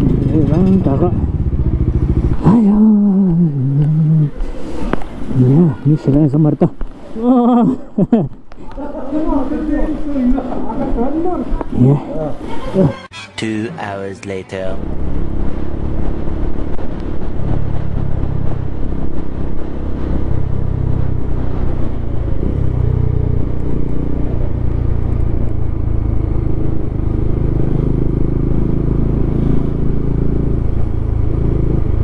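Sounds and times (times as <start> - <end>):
motorcycle engine droning: 0.0 - 8.1, 14.6 - 32.0
road noise: 0.0 - 32.0.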